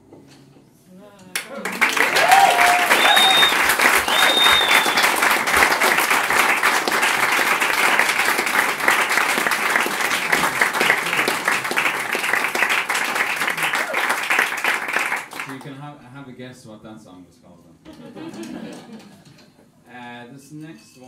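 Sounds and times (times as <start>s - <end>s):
audience applauding: 1.4s - 15.7s
short high whistles: 2.9s - 5.2s.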